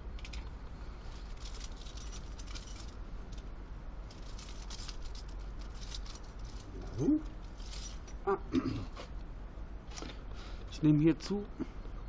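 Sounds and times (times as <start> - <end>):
light jingling clinks: 7.4 - 8.2.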